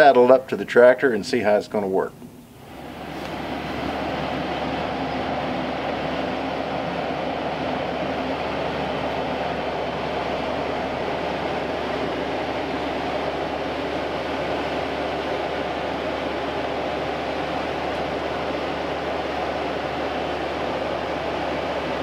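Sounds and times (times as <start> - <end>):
tractor diesel engine running: 2.6 - 22.0.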